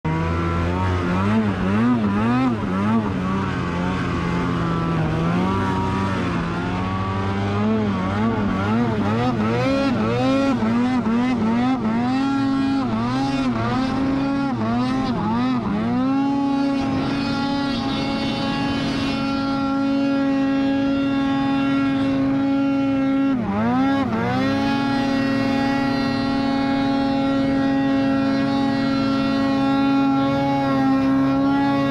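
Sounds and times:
snowmobile engine revving: 0.1 - 31.9.

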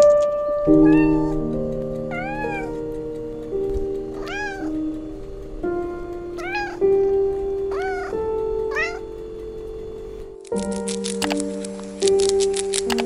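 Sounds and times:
soft piano music: 0.0 - 13.0
cat meowing: 0.7 - 1.4, 2.1 - 2.9, 4.2 - 4.8, 6.4 - 6.9, 7.7 - 9.2.

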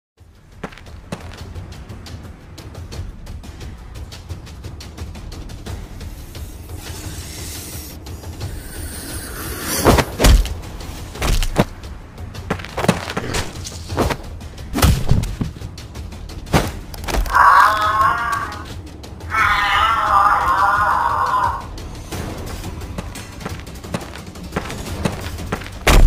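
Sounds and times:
background music: 0.2 - 26.0
warbling cry: 17.1 - 21.7.

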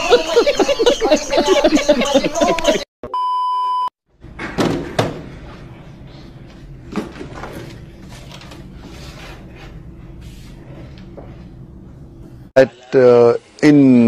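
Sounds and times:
test tone beep: 3.0 - 3.9
room noise: 4.1 - 14.0.

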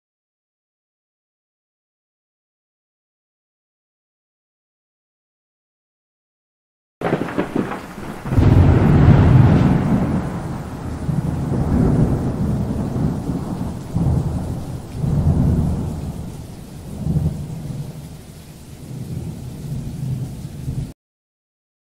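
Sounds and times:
thunder clap and rolling rumble: 7.0 - 20.9.

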